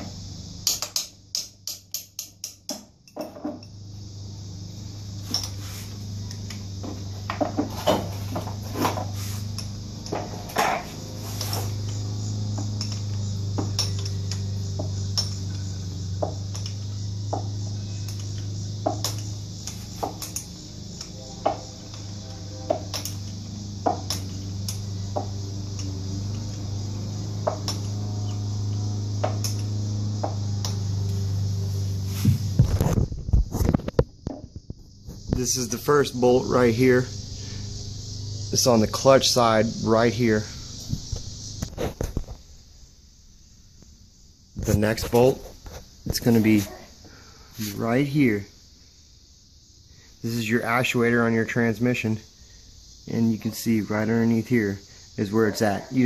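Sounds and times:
steady low hum: 0.0 - 56.0
tools clinking on metal: 0.6 - 3.8, 5.3 - 5.6, 12.6 - 15.6, 18.1 - 24.9.

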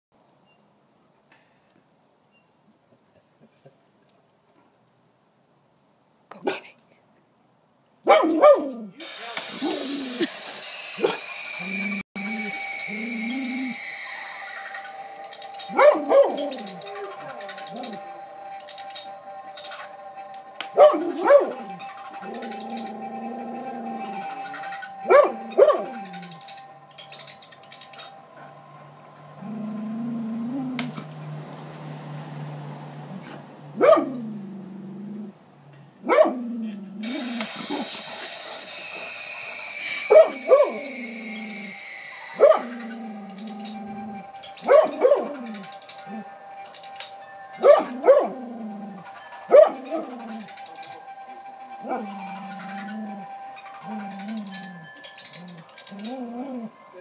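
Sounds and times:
dog barking: 8.0 - 8.8, 15.7 - 16.8, 20.7 - 21.7, 25.1 - 26.0, 33.8 - 34.3, 36.0 - 36.4, 40.1 - 40.8, 42.4 - 42.8, 44.6 - 45.5, 47.6 - 48.4, 49.5 - 50.1.

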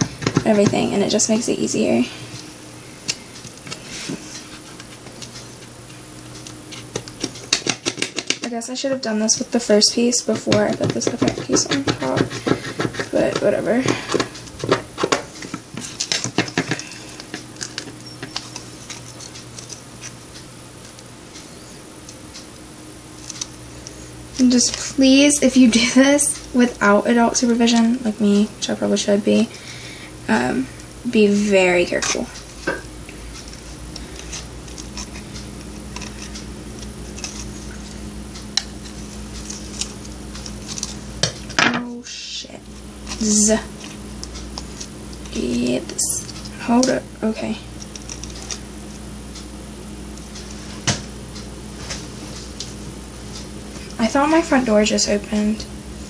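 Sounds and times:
low steady hum: 0.0 - 56.0
knife scraping and clicking on tape: 23.2 - 23.5, 33.4 - 37.5, 39.4 - 41.0.

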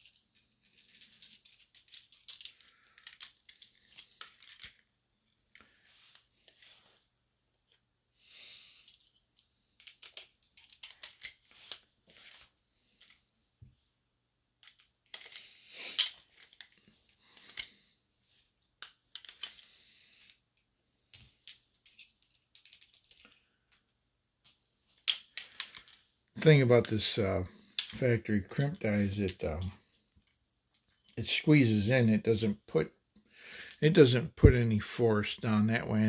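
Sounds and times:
metal cartridges clicking and clinking: 0.0 - 4.9, 8.8 - 12.3, 14.6 - 17.8, 18.8 - 20.4, 21.1 - 26.0, 27.8 - 31.3.

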